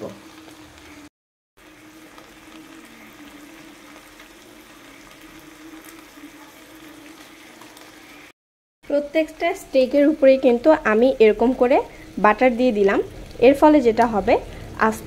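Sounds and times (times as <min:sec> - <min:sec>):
steaks sizzling in a frying pan: 0:01.6 - 0:08.3.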